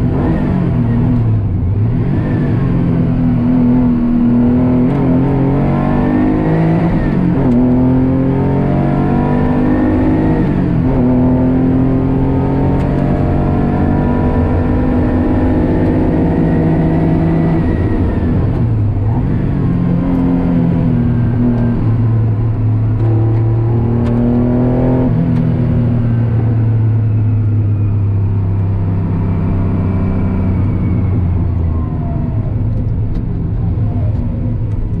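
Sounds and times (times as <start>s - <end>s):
race car engine revving: 0.0s - 27.2s.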